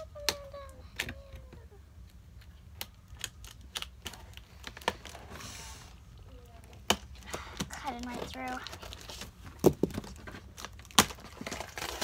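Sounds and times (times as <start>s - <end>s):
rustling scrape: 5.1s - 6.0s.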